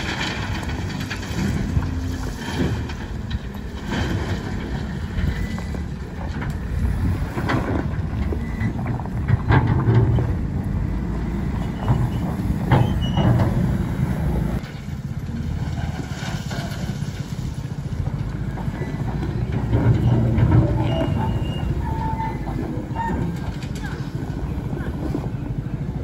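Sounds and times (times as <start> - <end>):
clanks and scrapes on gravel: 0.0 - 10.5, 14.6 - 18.0, 18.6 - 25.4
wheel loader diesel engine: 0.0 - 26.0.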